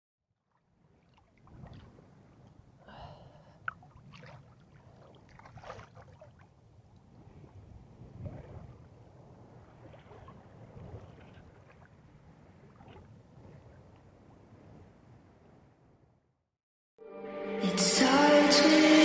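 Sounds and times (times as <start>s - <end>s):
water sloshing and splashing: 0.5s - 2.6s, 3.6s - 14.2s.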